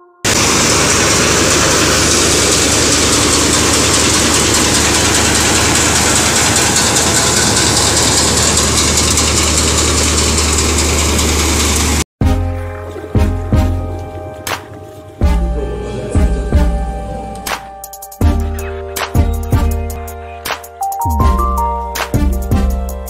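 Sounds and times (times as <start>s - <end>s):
grain thresher mechanical rush: 0.3s - 12.0s
tractor engine hum: 0.3s - 12.0s.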